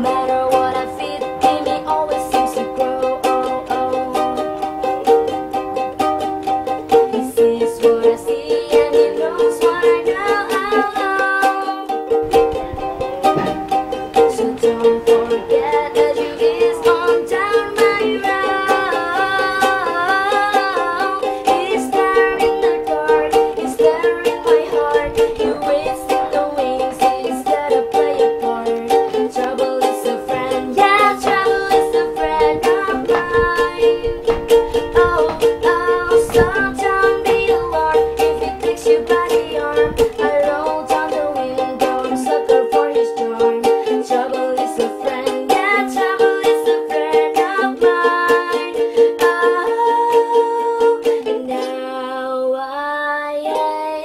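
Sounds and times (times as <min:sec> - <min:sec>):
plucked strings melody: 0:00.0 - 0:54.0.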